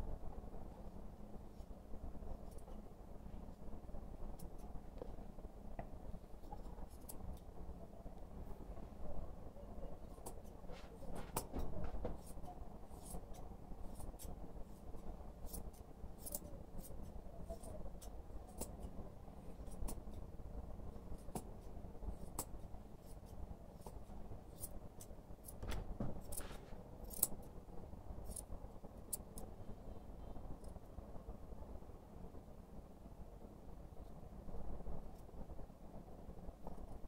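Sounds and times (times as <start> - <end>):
scissors snipping hair: 6.5 - 7.5, 15.4 - 18.9, 26.2 - 27.5, 28.2 - 28.5.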